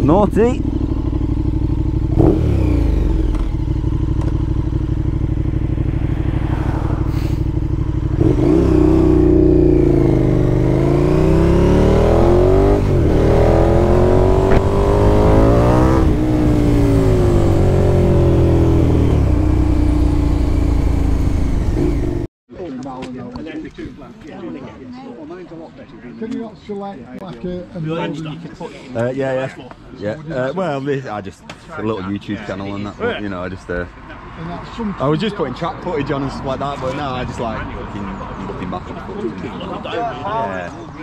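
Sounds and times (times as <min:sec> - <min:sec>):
motorcycle engine revving: 0:00.0 - 0:22.3.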